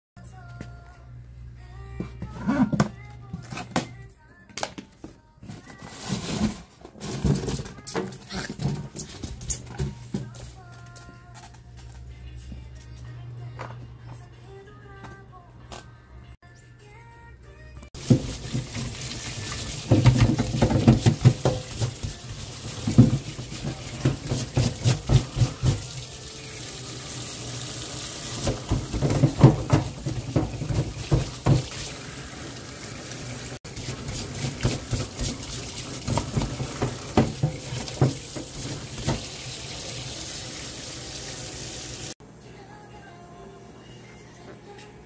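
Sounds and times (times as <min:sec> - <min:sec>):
brush scrubbing a shell: 0:18.0 - 0:25.7, 0:33.7 - 0:38.8
tap water running into a sink: 0:18.0 - 0:42.2.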